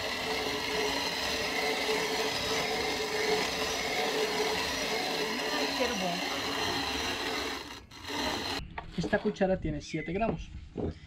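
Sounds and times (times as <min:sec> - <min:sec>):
coffee grinder running: 0:00.0 - 0:08.6.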